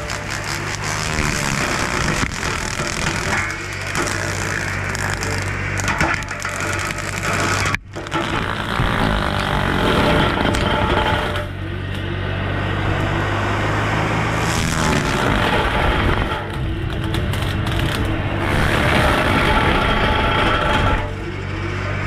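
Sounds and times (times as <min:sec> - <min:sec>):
brush cutter grinding trees: 0:00.0 - 0:22.0
diesel engine under load: 0:00.0 - 0:22.0.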